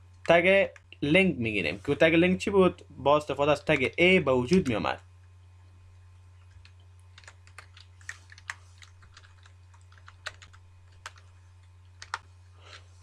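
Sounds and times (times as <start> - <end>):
steady low hum: 0.0 - 13.0
computer keyboard typing: 6.5 - 11.4, 12.0 - 12.2.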